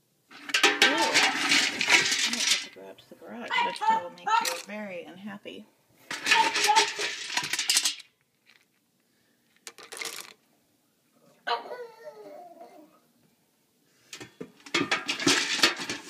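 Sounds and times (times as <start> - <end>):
kibble clattering in plastic bucket: 0.3 - 2.8, 6.1 - 8.7, 9.7 - 10.4, 14.6 - 16.0
dog whining: 11.4 - 13.0.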